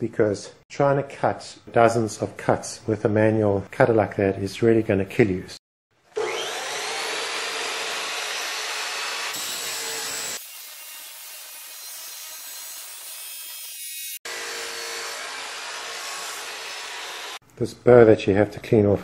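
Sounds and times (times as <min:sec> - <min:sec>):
cut-off saw grinding steel: 0:06.1 - 0:17.4.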